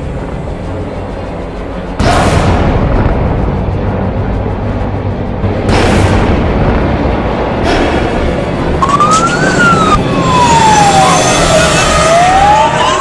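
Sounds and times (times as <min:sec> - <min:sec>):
siren wailing: 0:08.7 - 0:13.0.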